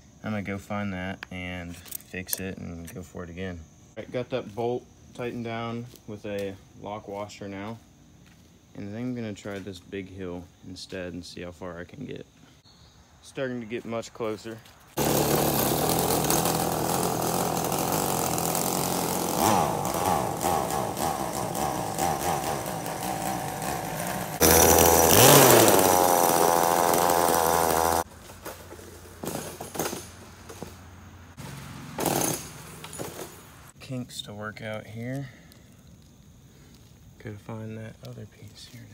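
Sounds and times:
two-stroke engine buzzing: 15.0 - 28.1, 31.4 - 33.4.

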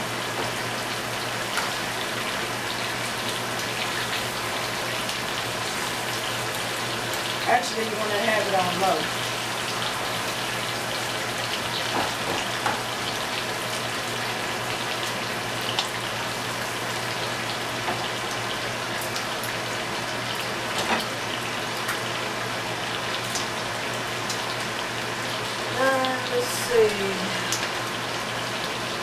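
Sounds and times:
butter sizzling in skillets: 0.0 - 29.0.

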